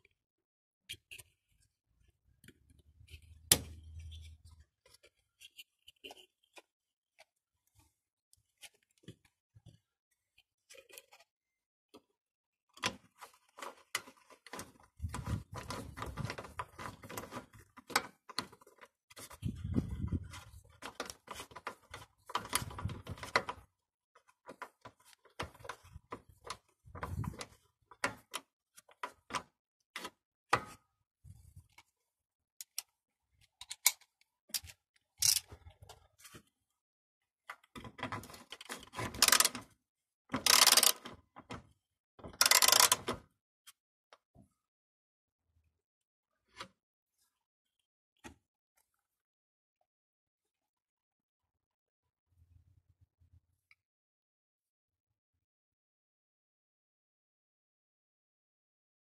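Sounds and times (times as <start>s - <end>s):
ratchet wrench clicking: 40.5s - 41.0s, 42.4s - 43.0s.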